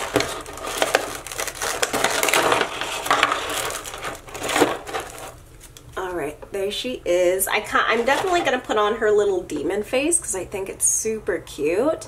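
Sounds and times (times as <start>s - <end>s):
plastic packaging crackling: 0.0s - 6.0s, 7.9s - 8.8s.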